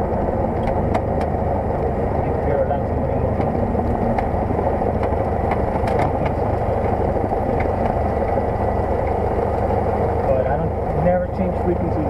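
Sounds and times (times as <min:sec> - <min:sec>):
propeller plane engine running: 0:00.0 - 0:12.0.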